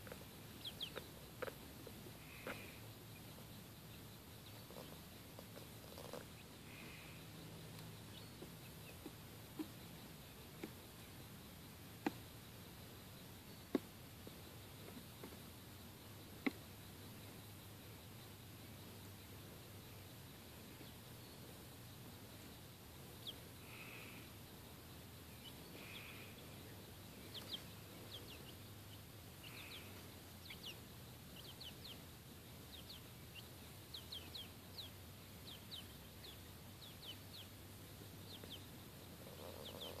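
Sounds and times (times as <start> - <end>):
chicks peeping: 0.0 - 40.0
faint background hum: 0.0 - 40.0.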